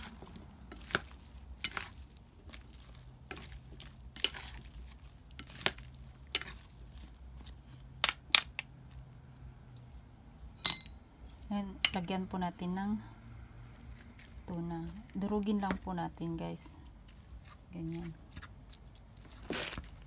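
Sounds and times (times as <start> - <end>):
salad rustling in a bowl: 0.0 - 8.0, 13.5 - 15.6, 16.8 - 20.0.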